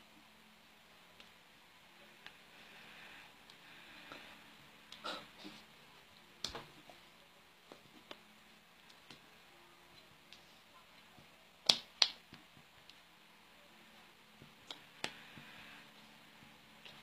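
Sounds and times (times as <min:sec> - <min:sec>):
hand slaps and claps: 0:11.6 - 0:12.4.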